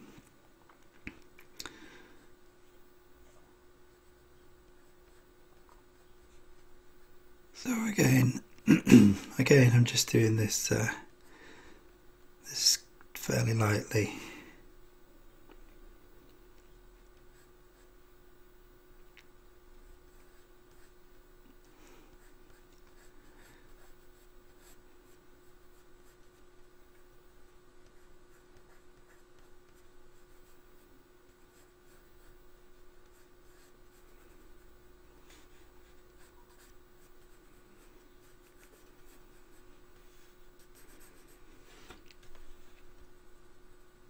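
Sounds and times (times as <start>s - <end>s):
steady low hum: 0.0s - 44.0s
pencil scratching on paper: 22.1s - 27.1s, 27.8s - 34.6s, 35.3s - 39.8s, 40.6s - 41.5s.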